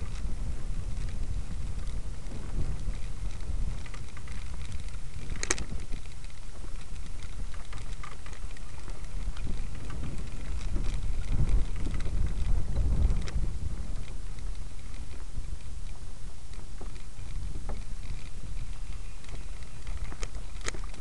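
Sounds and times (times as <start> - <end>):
small clicks and rattles: 0.0 - 21.0
wind rumbling on microphone: 0.0 - 21.0.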